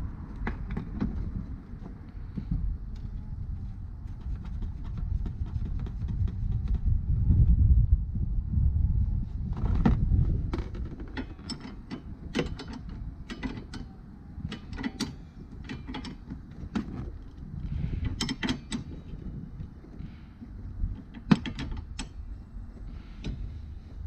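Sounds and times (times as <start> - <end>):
low rumble: 0.0 - 11.1
wrench clicks and clanks: 11.0 - 16.3, 18.0 - 19.0.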